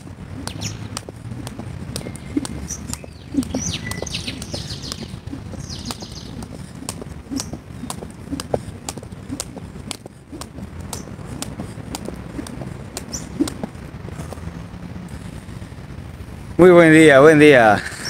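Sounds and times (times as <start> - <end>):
birds chirping: 0.0 - 14.4
feet landing: 0.0 - 14.4
skipping rope slapping ground: 0.0 - 14.4.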